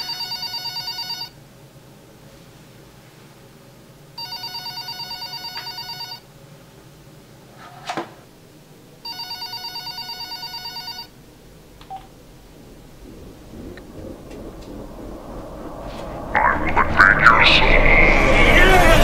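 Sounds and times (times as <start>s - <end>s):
telephone electronic trilling ring: 0.0s - 1.3s, 4.2s - 6.2s, 9.0s - 11.1s.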